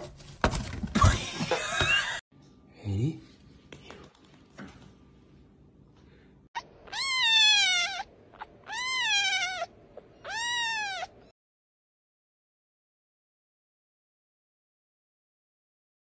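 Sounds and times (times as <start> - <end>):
kitten meowing: 6.6 - 11.3.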